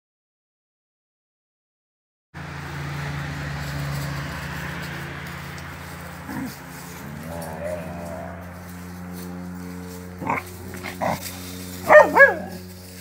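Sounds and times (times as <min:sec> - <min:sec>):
low hum: 0:02.4 - 0:13.0
dog vocalizing: 0:10.2 - 0:11.2, 0:11.9 - 0:12.5.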